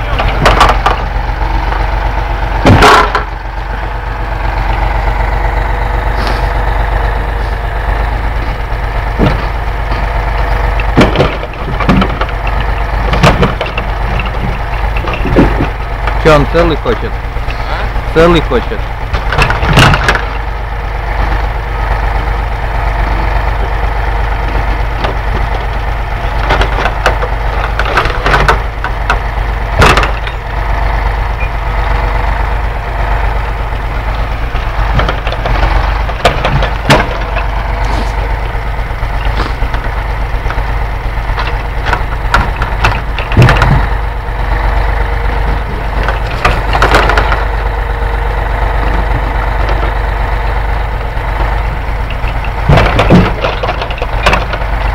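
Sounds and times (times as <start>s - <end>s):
hydraulic loader crane: 0.0s - 54.9s
truck engine running: 0.0s - 54.9s
wooden knocks of logs: 0.1s - 1.9s, 2.5s - 3.9s, 8.4s - 16.2s, 19.1s - 20.5s, 24.4s - 30.5s, 34.1s - 38.3s, 39.2s - 40.6s, 41.3s - 44.0s, 45.4s - 47.6s, 51.4s - 54.9s.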